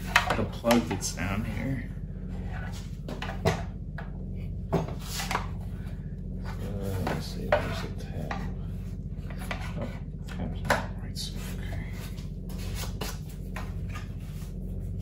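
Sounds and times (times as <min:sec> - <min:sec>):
low hum: 0:00.0 - 0:15.0
plastic rubbing and scraping: 0:00.0 - 0:15.0.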